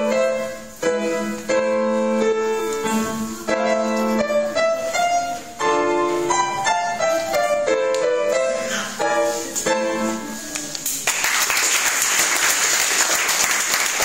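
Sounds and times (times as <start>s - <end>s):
upright piano playing: 0.0s - 10.6s
audience applause: 10.5s - 14.0s.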